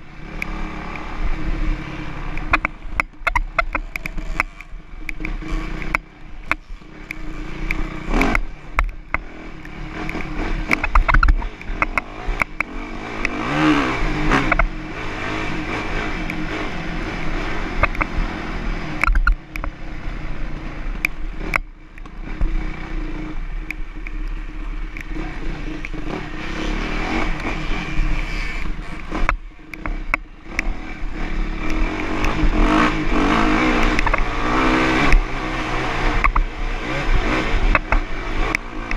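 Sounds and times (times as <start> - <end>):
dirt bike engine revving: 0.0 - 38.9
sharp clicks and clattering knocks: 2.3 - 13.4, 14.4 - 14.8, 17.7 - 18.2, 18.8 - 19.8, 20.9 - 26.6, 27.2 - 30.8, 33.7 - 36.5, 37.5 - 38.9.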